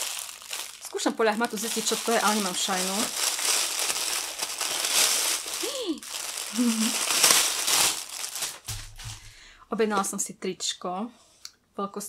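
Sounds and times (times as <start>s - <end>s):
plastic bag crinkling: 0.0s - 9.5s
person humming: 5.6s - 7.0s.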